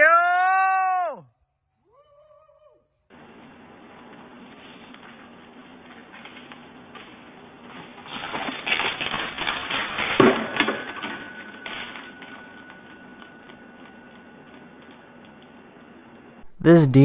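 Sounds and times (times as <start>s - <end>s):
faint steady tone: 11.0s - 16.4s.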